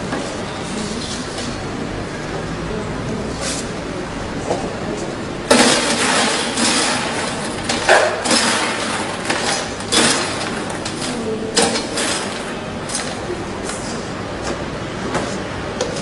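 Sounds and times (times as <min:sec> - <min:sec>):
metal scoop scraping popcorn: 0:05.5 - 0:13.2.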